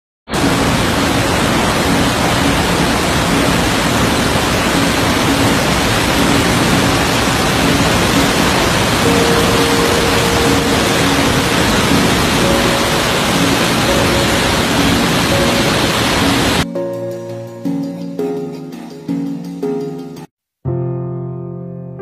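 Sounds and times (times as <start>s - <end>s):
waterfall rushing: 0.3s - 16.7s.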